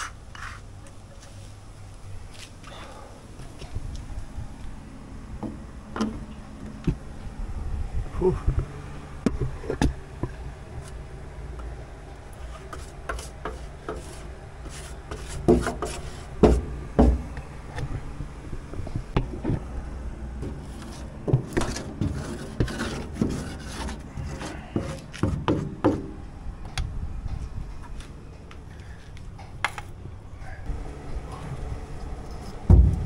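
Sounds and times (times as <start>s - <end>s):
paintbrush scrubbing on metal sheet: 12.4s - 16.6s, 20.5s - 25.4s.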